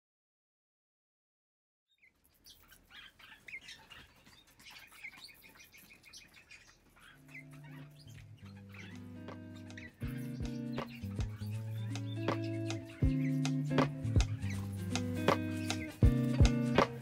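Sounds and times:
parakeet chirping: 0:01.9 - 0:17.0
beak pecking clicks: 0:02.4 - 0:17.0
soft music with held notes: 0:07.2 - 0:17.0.

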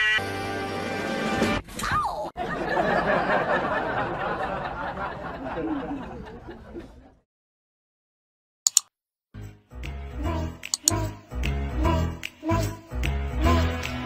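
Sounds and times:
people laughing and chattering: 0:02.4 - 0:07.2.

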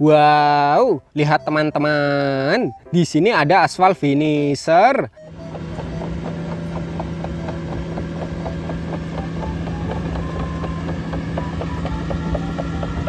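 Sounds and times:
diesel engine humming: 0:05.2 - 0:13.0
machine clicks and squeaks: 0:05.2 - 0:13.0.

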